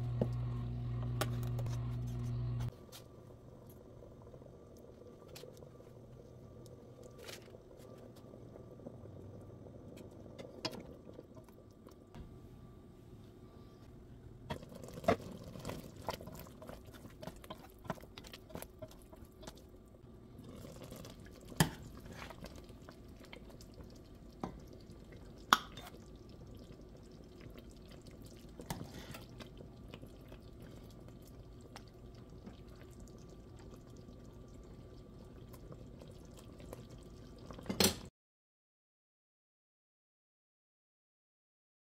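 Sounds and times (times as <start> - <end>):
gravy bubbling in a pot: 3.1 - 12.2, 14.4 - 38.1.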